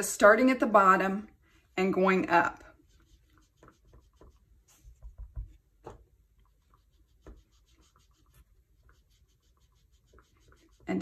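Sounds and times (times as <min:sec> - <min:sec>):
sponge dabbing on paper: 0:01.4 - 0:11.0.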